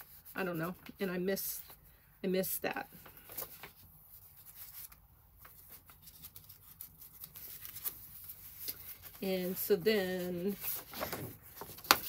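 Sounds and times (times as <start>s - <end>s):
paper rustling and sliding: 3.0s - 12.0s.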